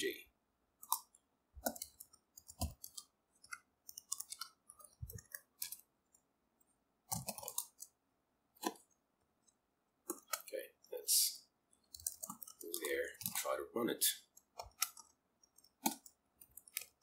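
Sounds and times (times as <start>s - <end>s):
keyboard keystrokes clicking: 0.8s - 5.8s, 14.4s - 17.0s.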